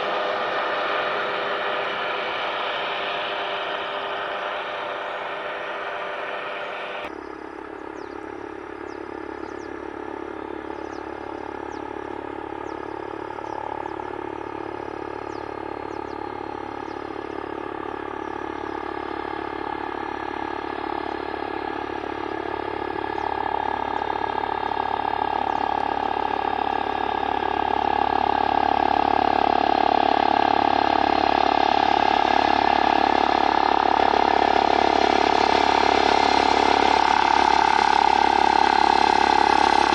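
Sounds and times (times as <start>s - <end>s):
helicopter turbine and rotor whine: 0.0s - 39.9s.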